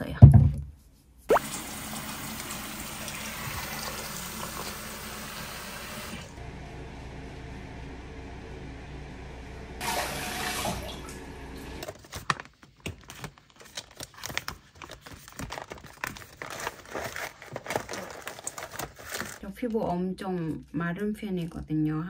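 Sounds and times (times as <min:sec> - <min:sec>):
tap running: 0:01.3 - 0:06.4
foil packets rustling and crinkling: 0:11.8 - 0:19.4.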